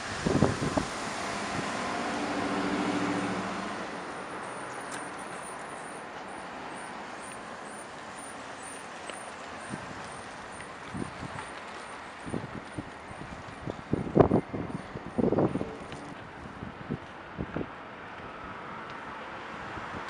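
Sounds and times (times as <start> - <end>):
vehicle engine passing: 0.0 - 5.6
steady traffic noise: 0.0 - 20.0.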